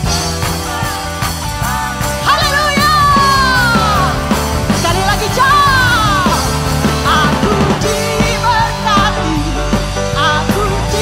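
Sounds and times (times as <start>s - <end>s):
electric guitar: 0.0s - 11.0s
rock band playing: 0.0s - 11.0s
woman singing into a microphone: 4.8s - 11.0s.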